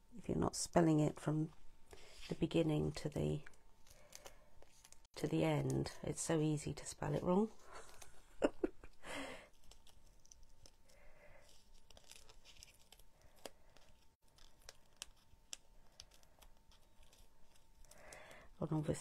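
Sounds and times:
faint paper rustling: 1.9s - 19.0s.

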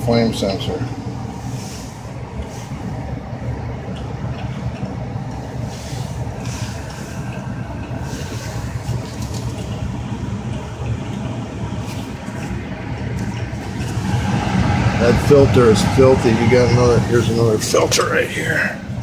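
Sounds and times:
furnace blower humming: 0.0s - 19.0s.

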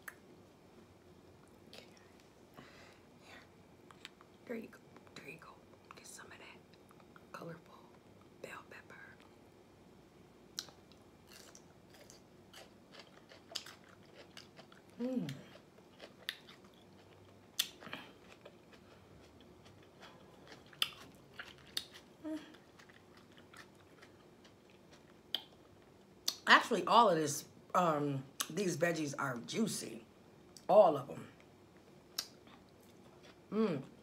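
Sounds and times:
person chewing crunchy vegetable: 10.6s - 26.4s, 32.2s - 34.0s.

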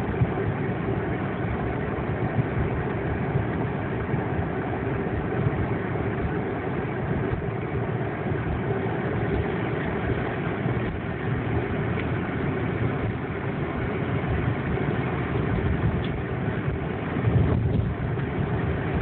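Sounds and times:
car engine and road noise: 0.0s - 19.0s.

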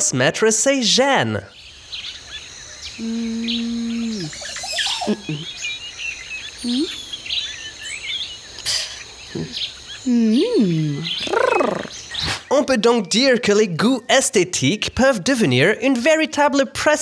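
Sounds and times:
birds chirping and singing: 0.3s - 17.0s.

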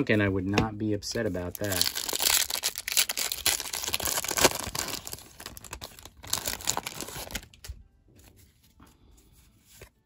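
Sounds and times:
wrapper crinkling and tearing: 1.5s - 7.7s.

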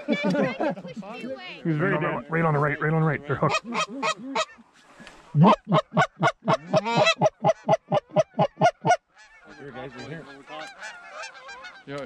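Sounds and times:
geese honking: 1.7s - 4.6s, 5.3s - 12.0s
goose call clucks: 1.8s - 4.6s, 5.3s - 12.0s.

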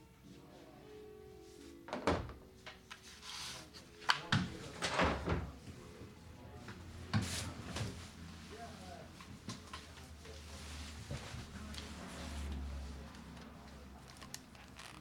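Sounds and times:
faint music: 0.0s - 15.0s.

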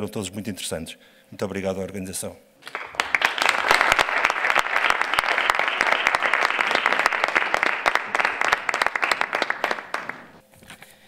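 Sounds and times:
audience applause: 2.6s - 10.4s.

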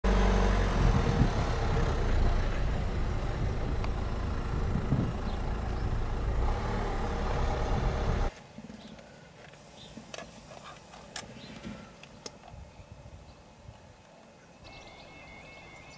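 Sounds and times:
car engine idling: 0.0s - 8.3s.

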